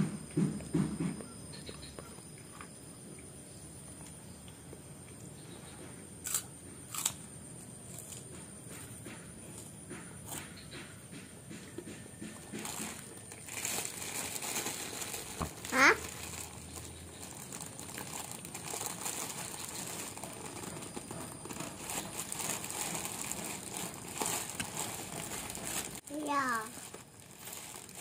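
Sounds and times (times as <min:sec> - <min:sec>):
plastic bag crinkling: 0:12.5 - 0:28.0.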